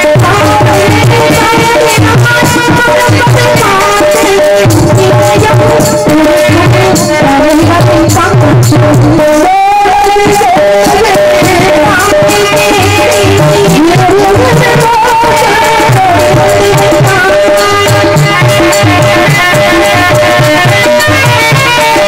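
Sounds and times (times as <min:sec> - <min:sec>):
harmonium holding notes: 0:00.0 - 0:22.0
tabla beating: 0:00.0 - 0:22.0.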